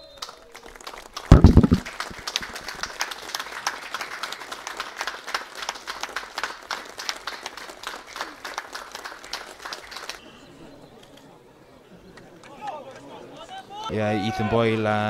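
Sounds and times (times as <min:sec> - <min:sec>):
crowd applauding: 0:00.0 - 0:10.2
loud low thump: 0:01.3 - 0:01.9.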